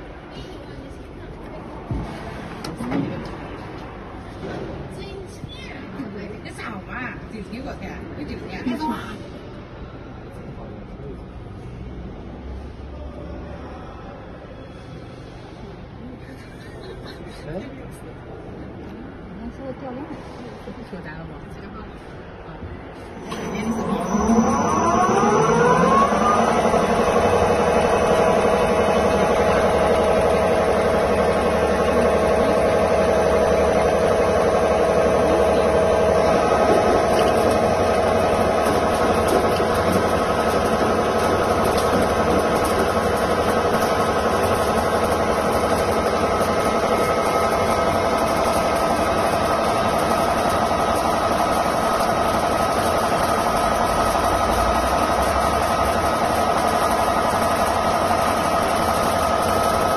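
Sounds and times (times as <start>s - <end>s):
mechanical hum: 0.0s - 59.9s
lathe machine whine: 23.0s - 59.9s.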